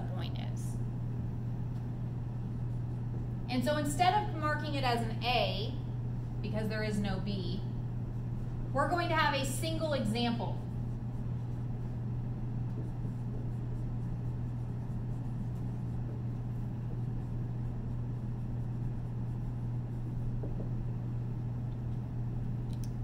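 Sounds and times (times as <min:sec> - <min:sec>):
low room hum: 0:00.0 - 0:23.0
marker on a whiteboard: 0:08.9 - 0:21.0.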